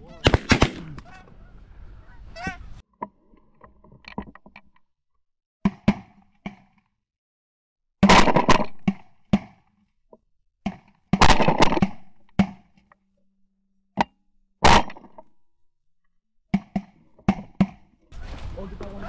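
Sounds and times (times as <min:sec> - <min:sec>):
shotgun blasts: 0:00.2 - 0:01.0.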